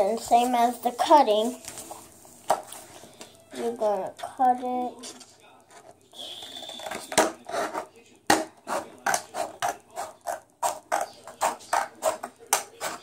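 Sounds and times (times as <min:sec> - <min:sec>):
paper rustling: 0:01.3 - 0:03.2.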